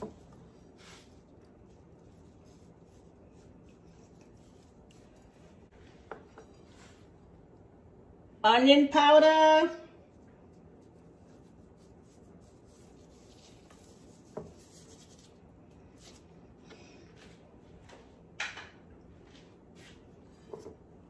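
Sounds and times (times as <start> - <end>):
gloved hand rubbing fish: 0.4 - 5.7, 10.6 - 15.4.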